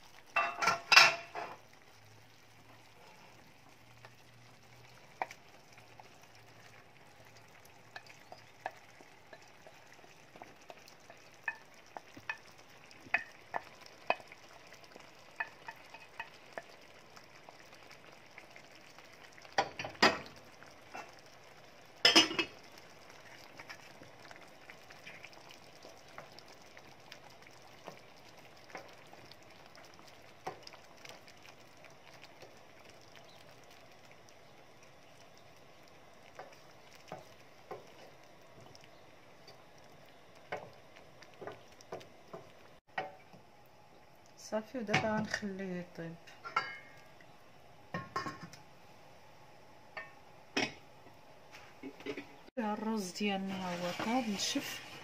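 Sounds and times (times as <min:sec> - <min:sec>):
sauce bubbling and popping: 0:00.0 - 0:48.8
wooden spoon scraping pan: 0:53.3 - 0:55.0.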